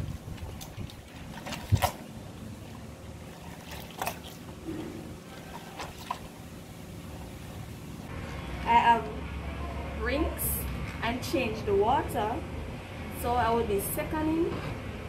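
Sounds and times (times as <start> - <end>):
sharp water splashes: 0.0 - 8.1
water sloshing and dripping: 0.0 - 8.1.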